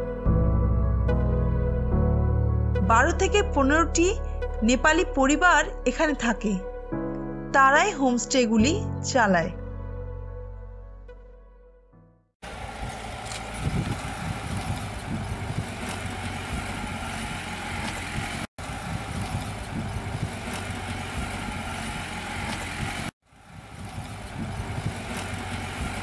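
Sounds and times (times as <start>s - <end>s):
car engine running: 12.4s - 26.0s.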